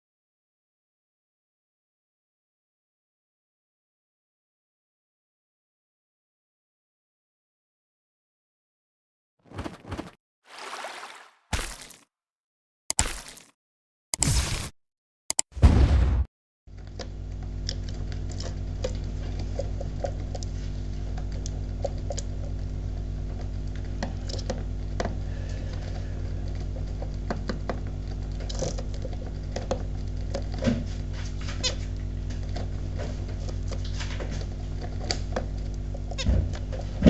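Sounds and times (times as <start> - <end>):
low electrical hum: 16.7 - 37.0
bird ticks and scratches: 17.0 - 36.9.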